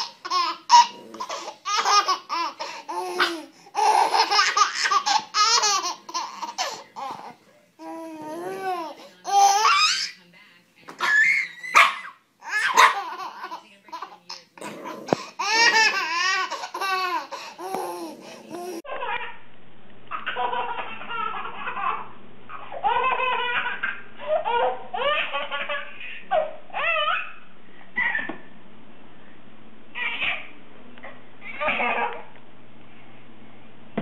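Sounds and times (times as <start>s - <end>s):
babies laughing: 0.0s - 7.4s, 12.4s - 14.4s, 15.1s - 19.4s, 20.1s - 27.4s, 28.0s - 28.4s, 31.4s - 32.3s.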